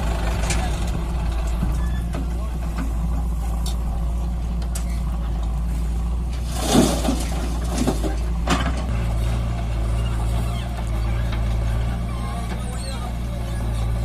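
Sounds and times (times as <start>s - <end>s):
diesel engines running: 0.0s - 14.0s
soil tipping with rushing clatter: 4.6s - 9.0s.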